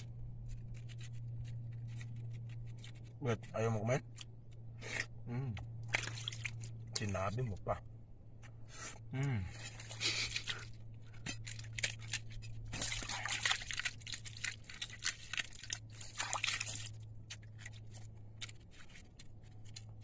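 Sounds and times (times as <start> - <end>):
water trickling and sloshing: 5.6 - 7.7, 9.5 - 20.0
shells cracking and crunching: 9.6 - 20.0.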